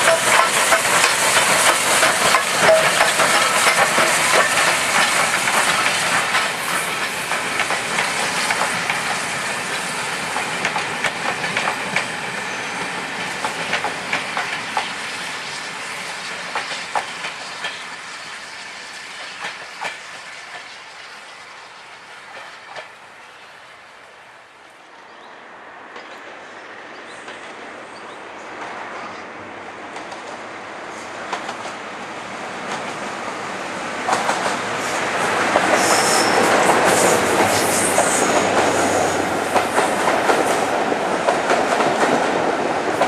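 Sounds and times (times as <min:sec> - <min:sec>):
wheels clicking over rail joints: 0:00.0 - 0:12.1, 0:12.8 - 0:15.0, 0:16.0 - 0:17.9, 0:19.2 - 0:20.8
steam locomotive passing: 0:00.0 - 0:43.0.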